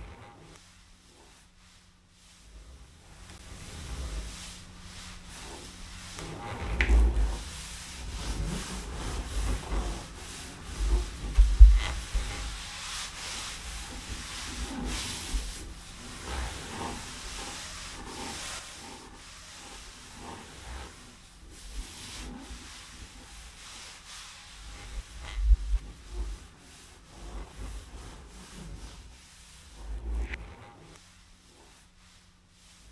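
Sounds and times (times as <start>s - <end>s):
charcoal scraping on paper: 0.0s - 32.9s
dull thumps: 10.8s - 12.9s.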